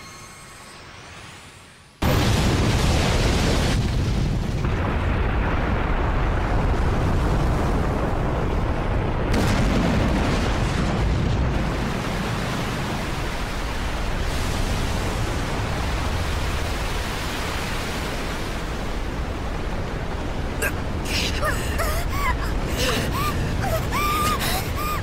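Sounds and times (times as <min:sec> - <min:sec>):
explosion blast with deep rumble: 0:02.0 - 0:16.6.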